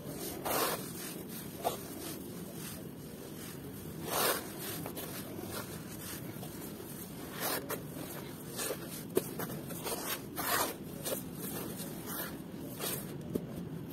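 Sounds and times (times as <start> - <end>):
hands raking dry dirt: 0.0 - 13.1.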